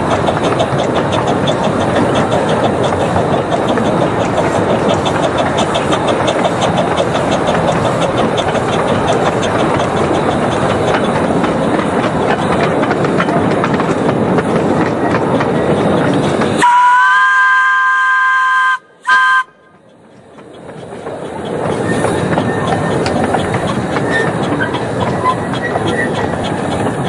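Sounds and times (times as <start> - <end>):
miniature steam train running: 0.0 - 27.0
steam whistle: 16.6 - 19.6.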